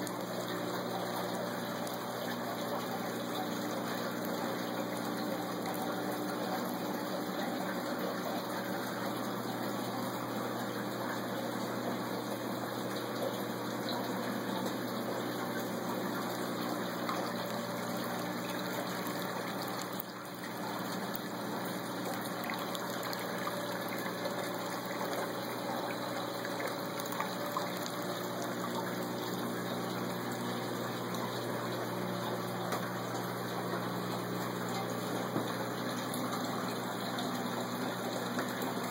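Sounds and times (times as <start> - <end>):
low pump hum: 0.0 - 38.9
water pouring and splashing: 15.6 - 38.9.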